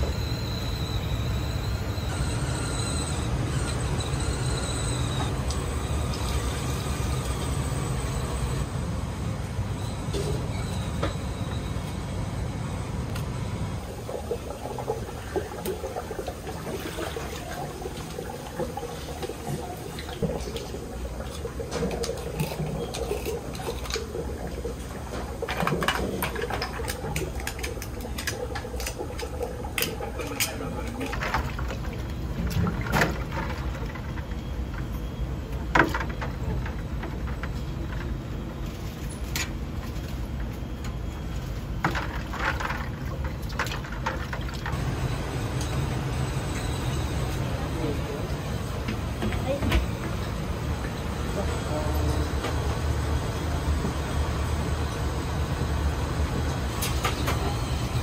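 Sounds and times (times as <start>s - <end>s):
water running and splashing: 13.8s - 33.8s.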